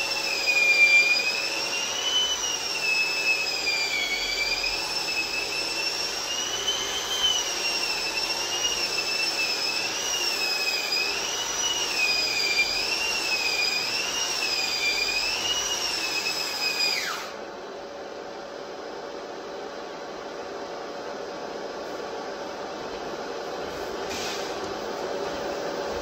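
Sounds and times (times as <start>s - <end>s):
drywall sander whining: 0.0s - 18.0s.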